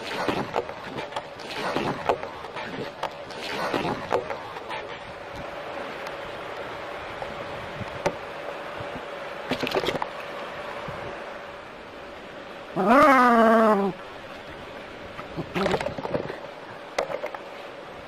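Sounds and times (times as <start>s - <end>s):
animal crying: 12.8s - 14.0s.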